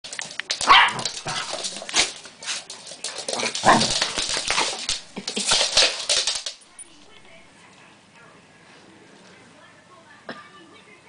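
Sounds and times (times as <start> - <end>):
dogs scuffling: 0.0 - 7.5.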